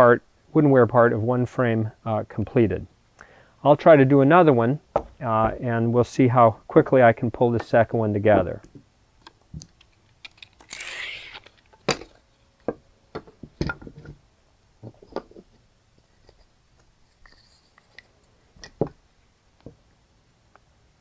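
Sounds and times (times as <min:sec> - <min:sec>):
wooden frame parts clicking: 0:08.6 - 0:14.2.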